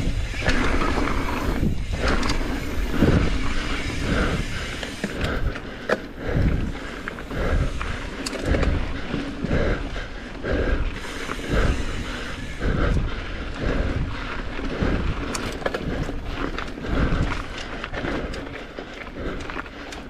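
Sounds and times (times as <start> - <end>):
wind buffeting microphone: 0.0 - 18.6
bike tyres rolling on dirt: 0.0 - 20.0.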